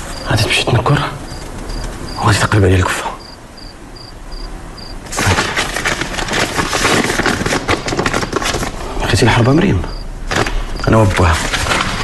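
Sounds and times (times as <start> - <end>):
crickets chirping: 0.0 - 5.2, 8.7 - 11.4
paper rustling and crackling: 5.1 - 8.9, 10.3 - 12.0.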